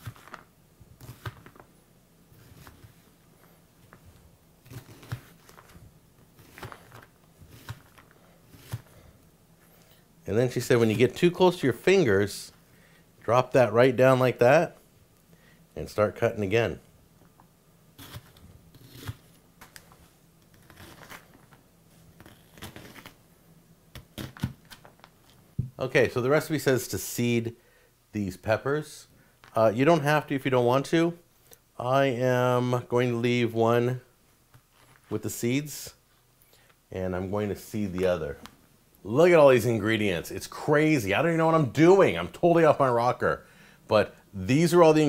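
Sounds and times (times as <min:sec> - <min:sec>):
knife slicing onion: 0:04.6 - 0:05.6, 0:06.4 - 0:09.0, 0:18.0 - 0:19.3.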